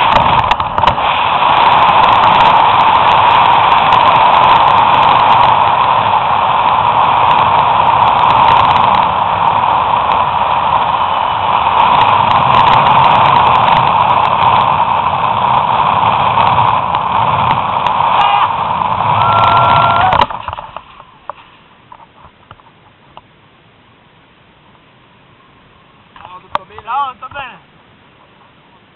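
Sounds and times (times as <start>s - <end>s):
zip line pulleys rushing on cable: 0.0s - 21.5s
wind on microphone: 0.0s - 22.7s.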